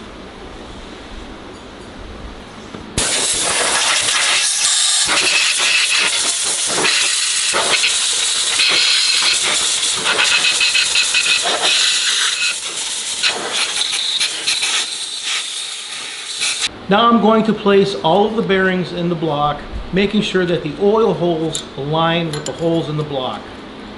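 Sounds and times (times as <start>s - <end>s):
compressed air blow gun hissing: 3.0s - 16.7s.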